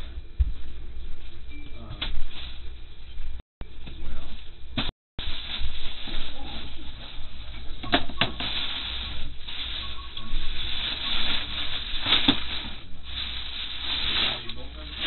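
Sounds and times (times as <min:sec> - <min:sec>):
plastic bag rustling: 0:08.3 - 0:15.0.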